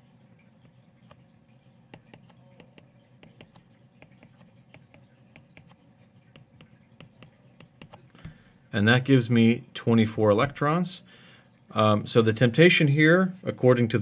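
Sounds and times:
stylus tapping on a screen: 0:01.9 - 0:08.0.

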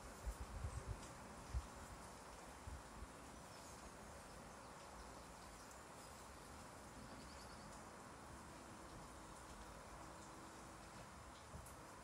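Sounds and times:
light rain falling: 0:00.0 - 0:12.0
bird chirps: 0:04.5 - 0:07.8.

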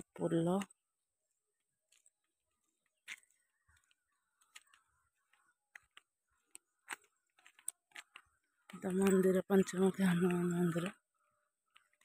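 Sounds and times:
faint clicks and taps: 0:01.9 - 0:11.0.

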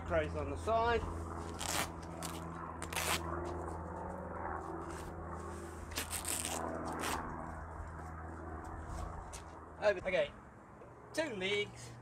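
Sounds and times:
steady low hum: 0:00.0 - 0:12.0
velcro tearing and rustling: 0:01.4 - 0:03.4, 0:05.9 - 0:07.3.

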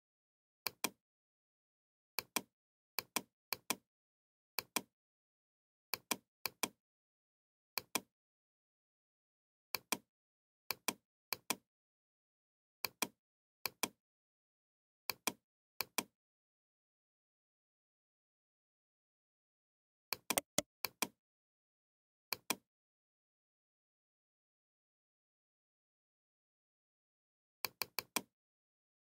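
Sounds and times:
computer mouse button clicks: 0:20.4 - 0:20.6.

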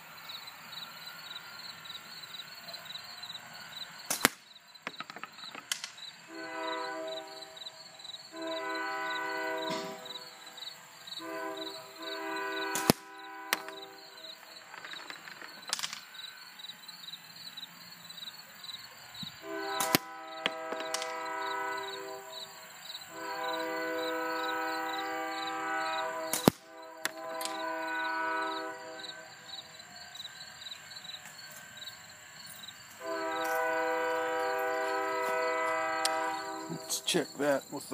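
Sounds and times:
distant train horn blasts: 0:00.0 - 0:04.1, 0:06.1 - 0:15.0, 0:16.2 - 0:37.8
slingshot shots striking target: 0:04.1 - 0:06.0, 0:09.7 - 0:10.0, 0:12.7 - 0:13.8, 0:19.8 - 0:21.2, 0:26.3 - 0:27.6.

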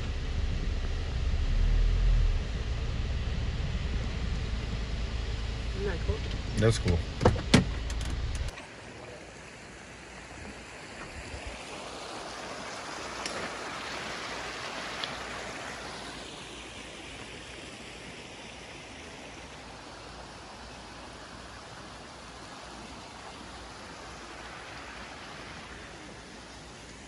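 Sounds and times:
creek rushing over rocks: 0:08.6 - 0:27.0.

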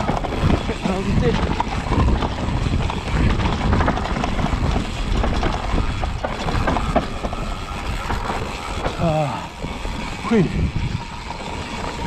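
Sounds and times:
bike rattling and knocking: 0:00.0 - 0:12.0
tyres on dirt and roots: 0:00.0 - 0:12.0
wind on microphone: 0:00.0 - 0:12.0.

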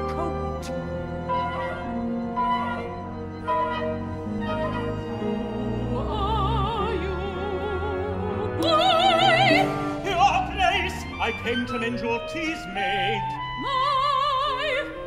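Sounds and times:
woman singing opera: 0:00.0 - 0:10.0, 0:13.1 - 0:15.0
small orchestra playing: 0:00.0 - 0:15.0
man singing opera: 0:10.0 - 0:13.6.

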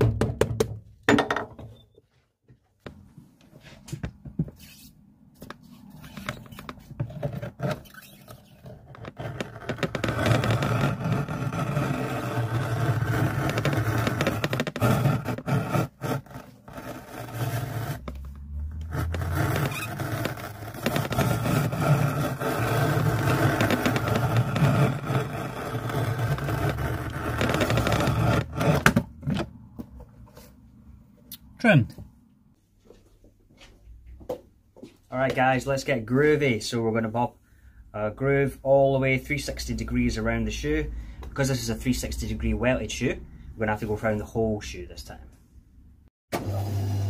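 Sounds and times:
knife scraping through thick leather: 0:05.6 - 0:29.0.

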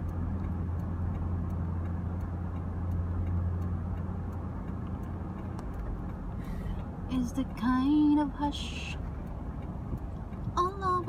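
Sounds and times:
car cabin engine and tyre hum: 0:00.0 - 0:11.0.

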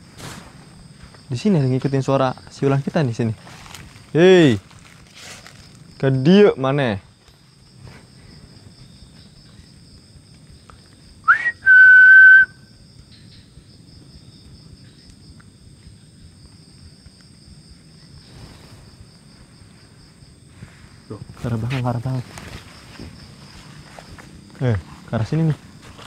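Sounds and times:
person whistling: 0:11.3 - 0:12.6.

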